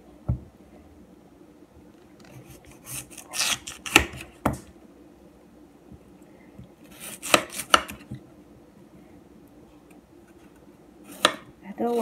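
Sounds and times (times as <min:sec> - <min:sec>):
knife scraping on cutting board: 0:02.4 - 0:04.0.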